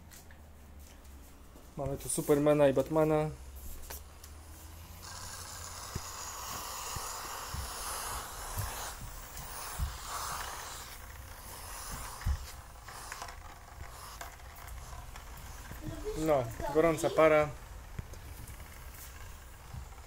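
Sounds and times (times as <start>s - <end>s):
steam hissing from nozzle: 4.6s - 17.5s.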